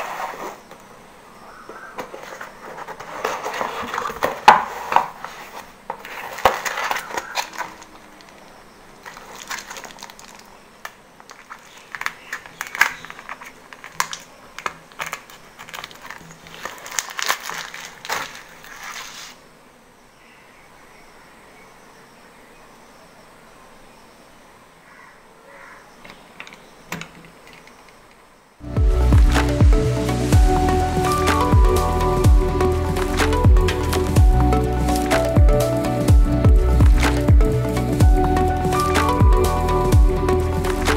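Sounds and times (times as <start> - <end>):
bubble wrap crinkling: 1.9 - 19.4, 28.6 - 40.9.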